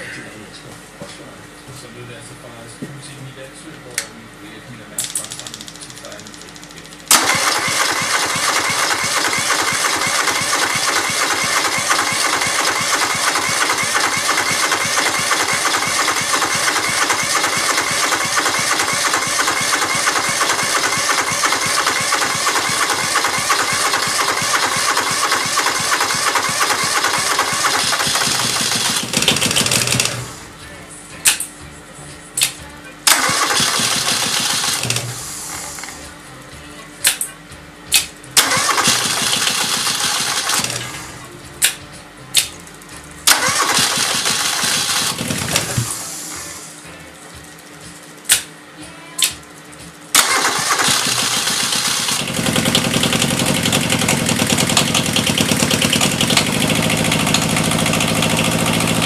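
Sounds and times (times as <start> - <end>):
starter motor cranking diesel engine: 7.1 - 30.4, 33.1 - 36.0, 38.4 - 41.1, 43.2 - 46.7, 50.1 - 59.0.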